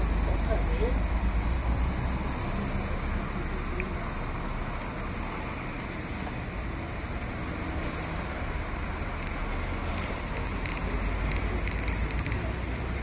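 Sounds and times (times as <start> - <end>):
bus engine and road rumble: 0.0 - 13.0
faint clicks: 9.1 - 13.0.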